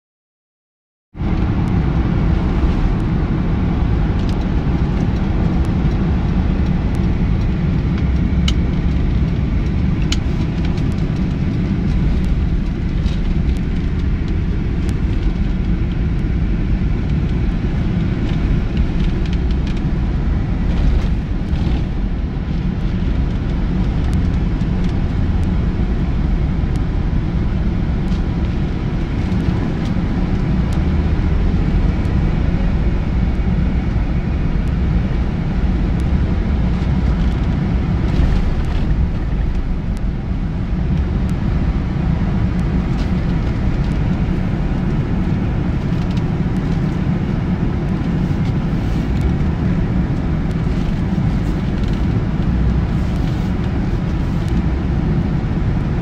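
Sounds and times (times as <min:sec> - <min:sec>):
car engine and road noise: 0:01.1 - 0:56.0.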